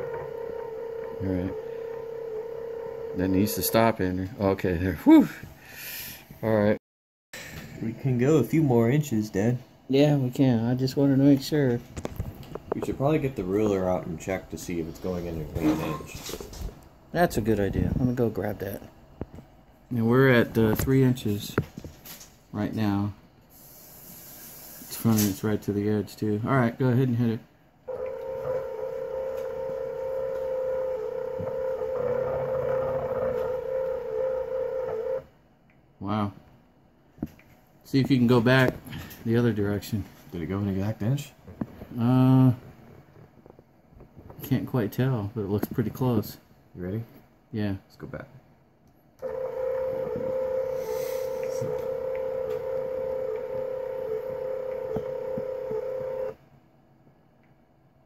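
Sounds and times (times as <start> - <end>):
stepper motor whine: 27.9 - 35.2.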